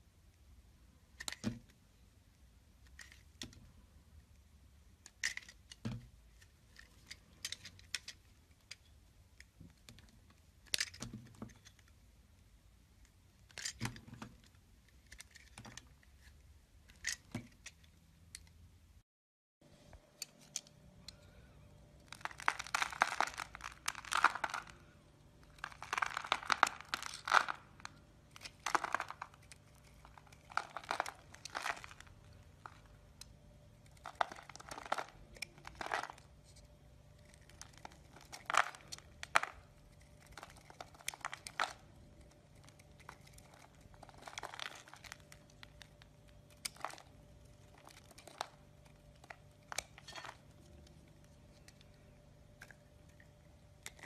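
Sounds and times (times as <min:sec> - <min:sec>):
crumbly crunching of soap: 0:21.0 - 0:54.0.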